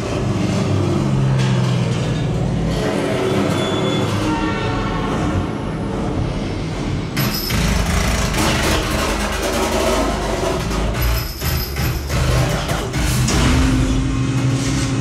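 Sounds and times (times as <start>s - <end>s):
road noise: 0.0s - 7.4s
vehicle engines: 0.0s - 15.0s.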